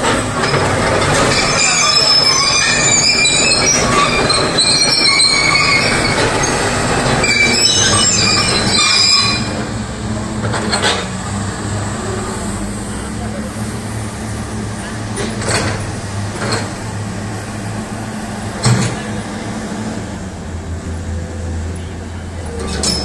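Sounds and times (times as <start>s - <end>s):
excavator hydraulic squealing: 0.1s - 11.2s, 21.8s - 23.0s
low engine rumble: 9.0s - 23.0s.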